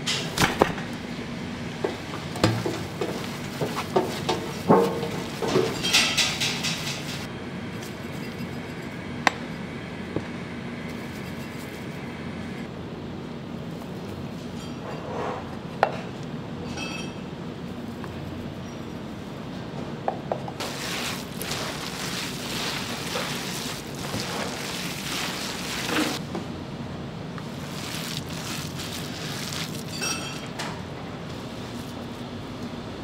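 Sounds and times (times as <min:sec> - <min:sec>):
steady background hum: 0:00.0 - 0:33.0
dishes clinking: 0:01.8 - 0:07.3, 0:29.8 - 0:30.8.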